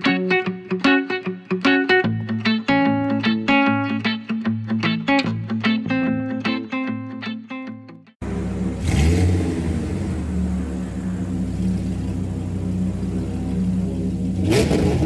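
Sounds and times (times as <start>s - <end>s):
motorcycle engine idling: 8.2s - 15.0s
motorcycle throttle revs: 8.2s - 15.0s.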